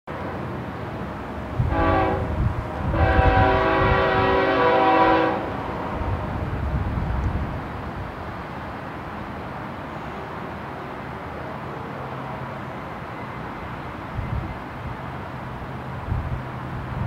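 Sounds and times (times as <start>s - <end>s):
rumble of rolling train: 0.1s - 17.0s
locomotive air horn: 1.6s - 5.8s.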